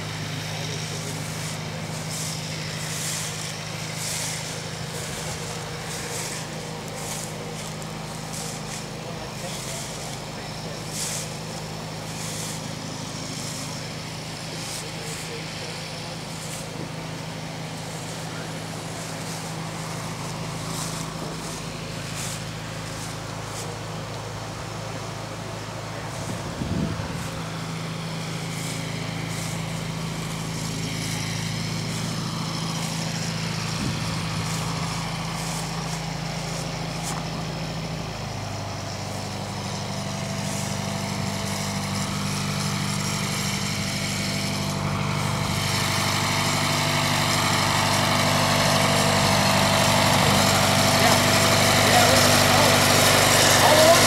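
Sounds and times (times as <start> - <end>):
engine running steadily: 0.0 - 54.0.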